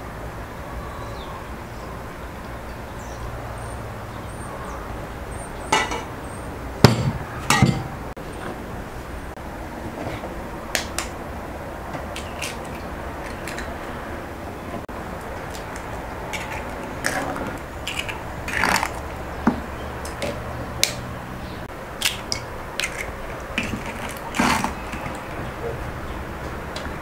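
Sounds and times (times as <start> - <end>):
eggs cracking on bowl rims: 12.0 - 13.8, 15.1 - 21.1, 22.0 - 25.4.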